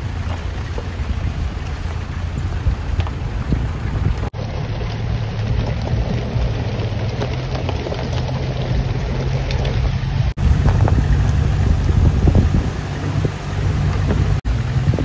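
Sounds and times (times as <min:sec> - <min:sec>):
off-road vehicle engines rumbling: 0:00.0 - 0:15.0
tyres on gravel: 0:04.3 - 0:10.9.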